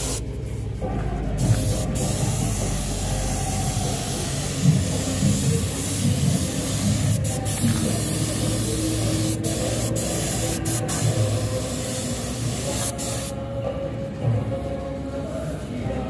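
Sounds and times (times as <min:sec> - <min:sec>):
paint spray gun hissing: 0:00.0 - 0:00.2, 0:01.4 - 0:13.4.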